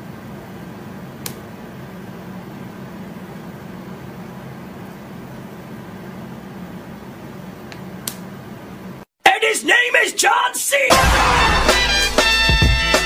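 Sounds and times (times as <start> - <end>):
low room hum with hiss: 0.0 - 9.1.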